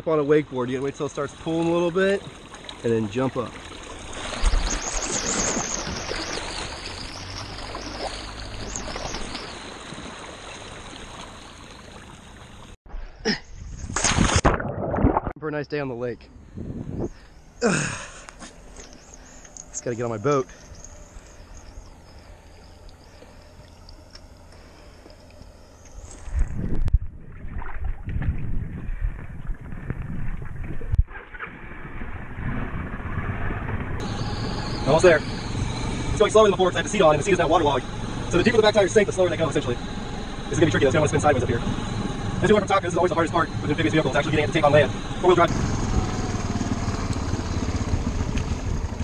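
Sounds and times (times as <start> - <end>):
engine running low: 0.0 - 12.8, 15.8 - 28.0, 28.9 - 49.0
water churning and splashing: 0.0 - 12.8, 13.9 - 15.4, 26.1 - 49.0
water rushing and splashing: 0.0 - 12.8.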